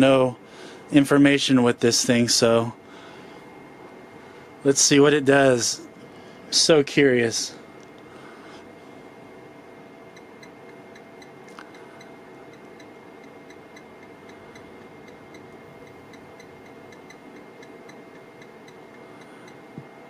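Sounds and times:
steady low hum: 0:00.0 - 0:20.0
faint regular ticking: 0:10.1 - 0:20.0.

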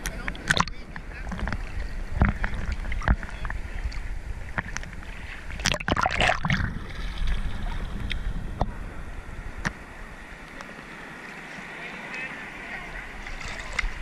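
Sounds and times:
seawater sloshing: 0:00.0 - 0:08.7, 0:10.2 - 0:14.0
low steady rumble: 0:00.0 - 0:10.5
wave splashing over camera: 0:00.0 - 0:14.0.

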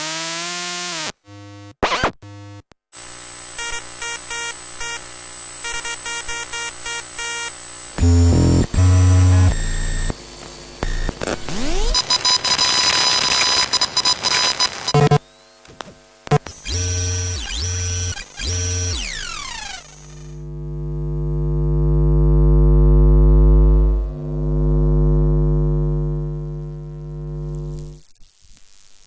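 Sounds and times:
electronic clicks: 0:03.0 - 0:10.2, 0:10.8 - 0:15.2
short buzzy bleeps: 0:03.0 - 0:10.2, 0:10.8 - 0:15.2
low electric hum: 0:20.4 - 0:27.9.

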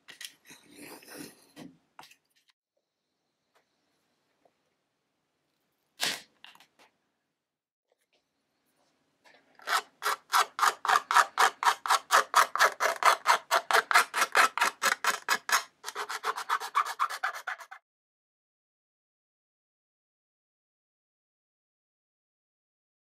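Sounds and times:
needle scratching acrylic plate: 0:09.6 - 0:17.8.

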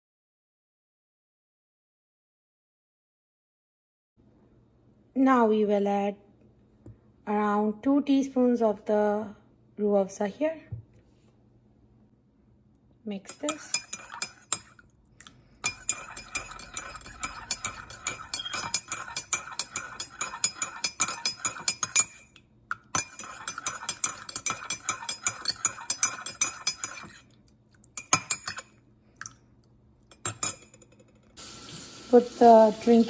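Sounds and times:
spoon stirring in a ceramic mug: 0:13.2 - 0:29.4, 0:30.1 - 0:31.1
spoon tapping mug: 0:13.3 - 0:14.7, 0:15.6 - 0:27.2, 0:28.0 - 0:28.6, 0:30.1 - 0:31.0.

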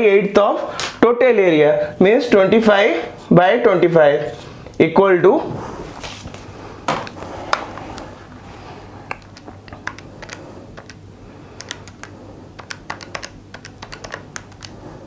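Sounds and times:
calculator keys clicking: 0:09.1 - 0:11.0, 0:11.6 - 0:14.8.

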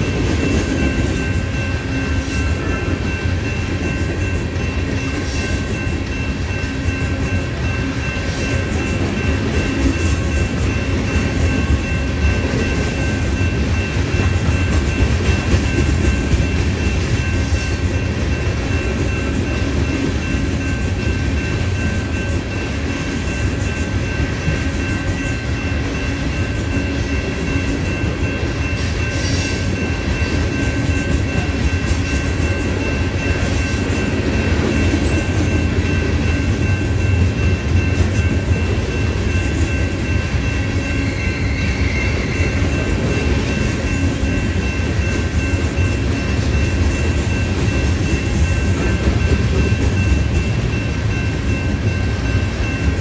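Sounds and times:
clickety-clack over rail joints: 0:00.0 - 0:40.8, 0:41.8 - 0:53.0
train wheels rumbling on rails: 0:00.0 - 0:53.0.

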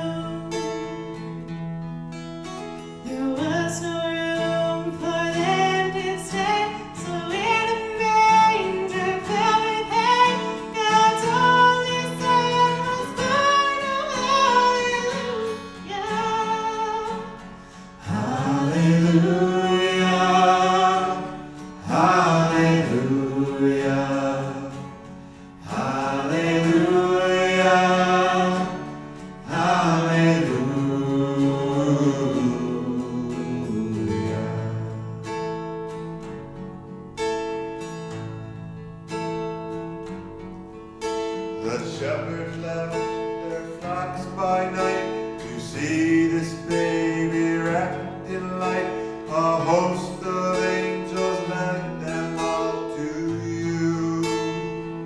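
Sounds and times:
man singing: 0:00.0 - 0:01.0, 0:03.0 - 0:17.3, 0:18.0 - 0:34.9, 0:41.6 - 0:55.0
acoustic guitar: 0:00.0 - 0:55.0
woman singing: 0:03.0 - 0:17.4.

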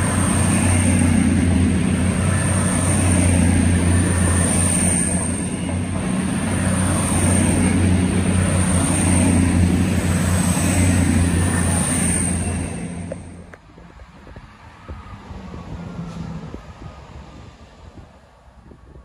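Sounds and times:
diesel train running past: 0:00.0 - 0:19.0.

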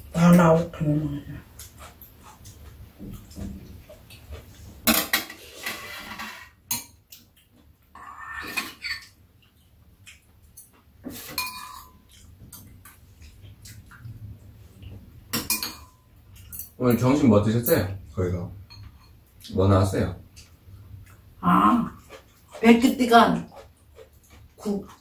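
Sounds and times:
cutlery clinking on ceramic bowls: 0:10.6 - 0:12.7, 0:15.3 - 0:17.8, 0:18.7 - 0:19.2.

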